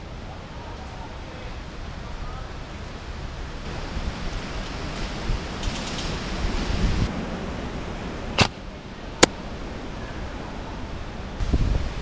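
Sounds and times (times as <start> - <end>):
wind noise on microphone: 3.0 - 12.0.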